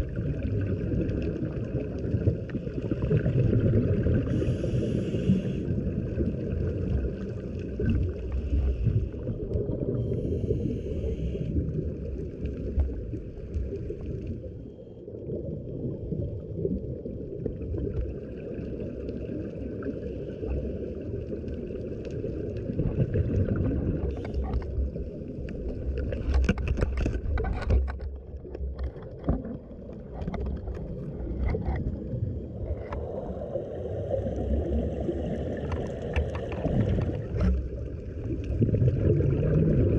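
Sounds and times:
gurgling exhaled bubbles: 0.0s - 39.9s
muffled underwater rumble: 0.0s - 39.9s
scuba regulator breathing: 4.2s - 5.9s, 8.3s - 11.8s.

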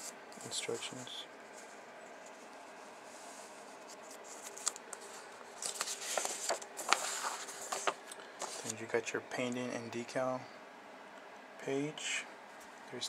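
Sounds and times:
paper pages rustling: 3.6s - 8.9s.

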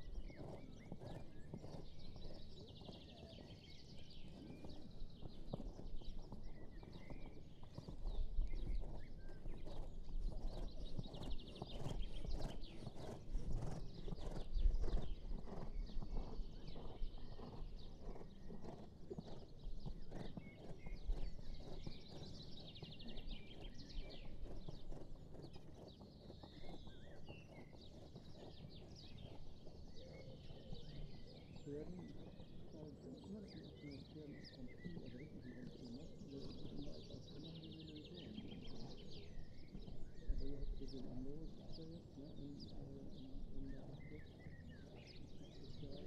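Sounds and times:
horse hoofbeats on sand: 0.0s - 31.4s.

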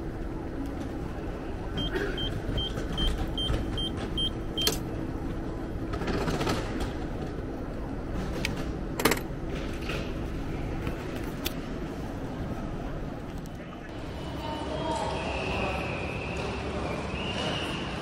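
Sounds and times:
ticket machine beeping: 1.8s - 4.9s.

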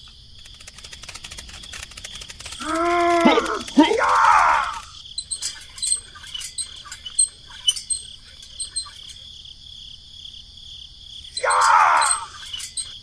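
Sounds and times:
sharp high clicks: 0.0s - 9.2s, 11.4s - 13.0s
high-pitched insect chirring: 0.0s - 10.4s, 11.1s - 13.0s
loud voice-like sound: 2.6s - 4.9s, 11.4s - 12.3s.

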